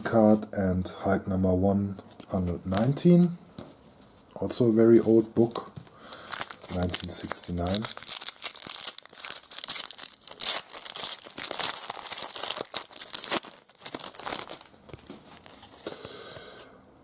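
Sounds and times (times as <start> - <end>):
cards rustling: 6.0 - 16.2
foil wrapper crinkling and tearing: 6.1 - 16.0.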